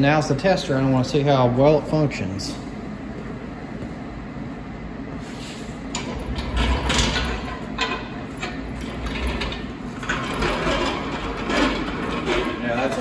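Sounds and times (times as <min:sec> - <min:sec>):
clunks and rattles: 0:05.9 - 0:13.0.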